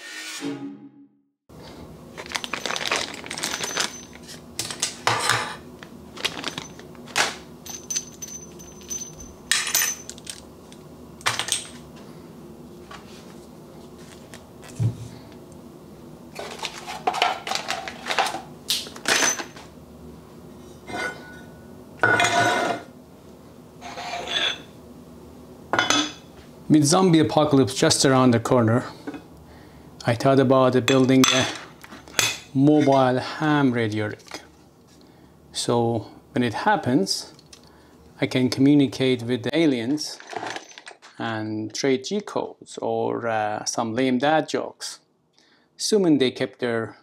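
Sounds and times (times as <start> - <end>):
objects clinking on metal table: 7.6 - 10.4, 19.0 - 19.6, 25.8 - 26.2.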